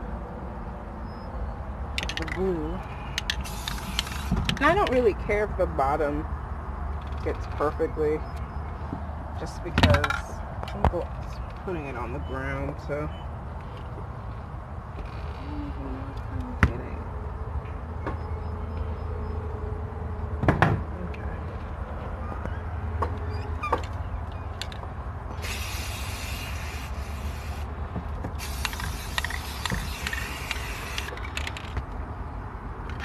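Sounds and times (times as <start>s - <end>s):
spray paint can hissing: 3.2s - 4.4s, 25.4s - 27.7s, 28.4s - 31.2s.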